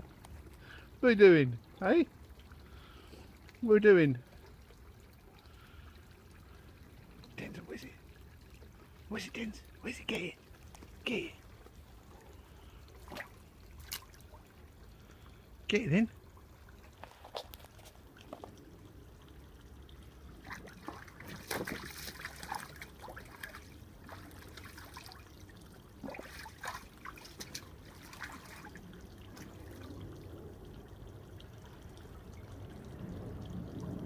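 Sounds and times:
dog splashing water: 10.6 - 14.5, 20.1 - 30.4.

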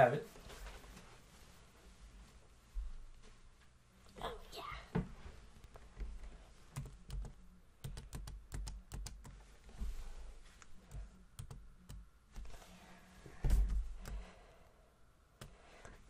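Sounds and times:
keyboard typing: 6.7 - 9.4, 10.9 - 12.1.

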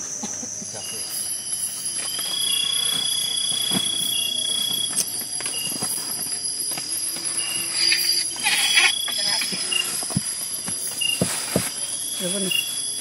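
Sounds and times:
insect chirp: 0.0 - 13.0
insects trilling: 0.0 - 13.0
spoon knocking and scraping: 7.8 - 9.5.

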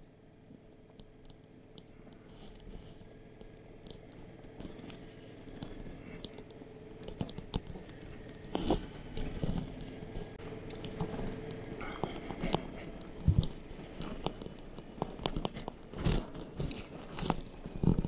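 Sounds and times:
faint engine hum: 0.0 - 18.0
tyres crunching over gravel: 1.8 - 18.0.

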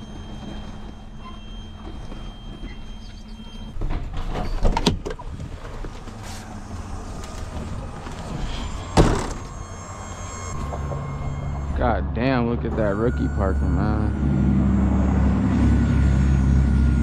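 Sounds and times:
clunks and clicks: 0.3 - 11.8
steady engine hum: 5.0 - 17.0
cab door slamming: 8.0 - 9.8.

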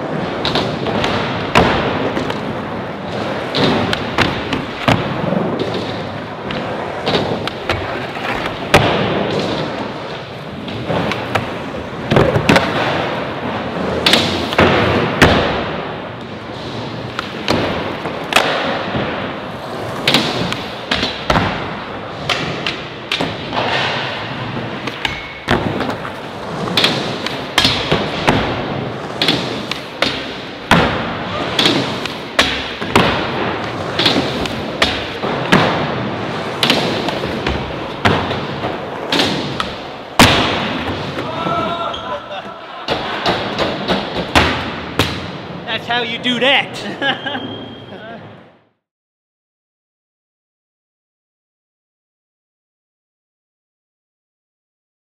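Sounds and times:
skateboard clacks and thuds: 0.0 - 41.5, 42.9 - 45.2
skateboards rolling: 0.0 - 45.6.

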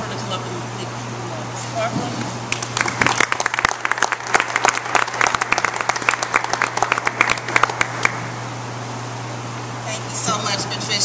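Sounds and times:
steady low hum: 0.0 - 11.0
audience applauding: 2.5 - 8.2.

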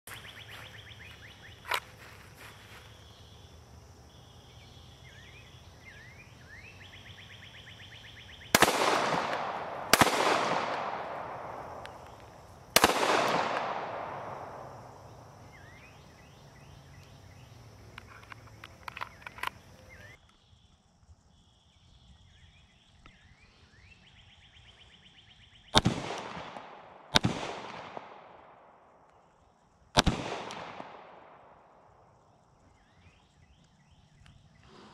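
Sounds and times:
pistol shots echoing: 8.5 - 14.9, 25.8 - 28.3, 30.0 - 31.4.

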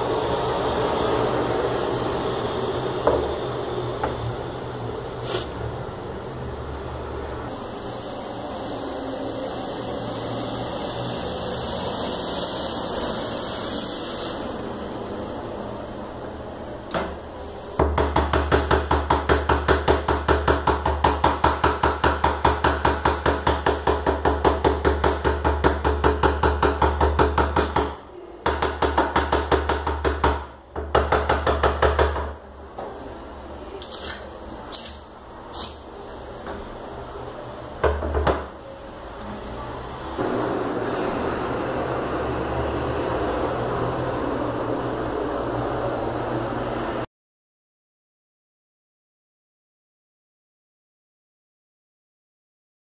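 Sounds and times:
steady hiss: 7.5 - 15.1.

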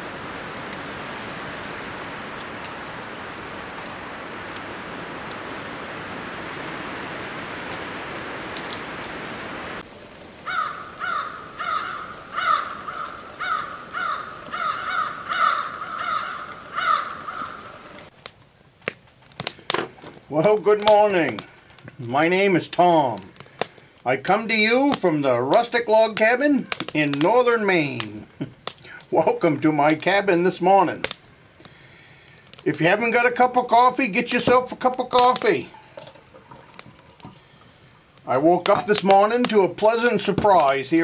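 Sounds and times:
steady hiss: 0.0 - 41.0
crow cawing: 10.4 - 18.1.

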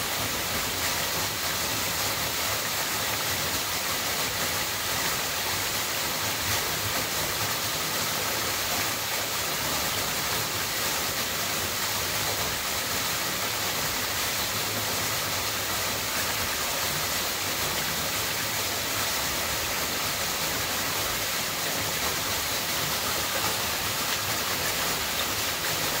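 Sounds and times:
waterfall splashing into pool: 0.0 - 26.0.

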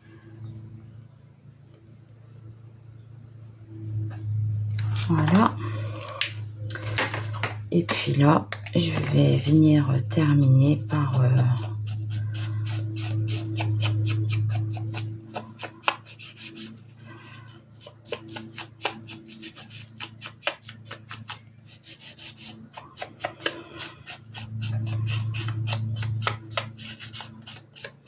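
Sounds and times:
low steady hum: 0.0 - 28.0
ink pad scratching on paper: 9.0 - 28.0.

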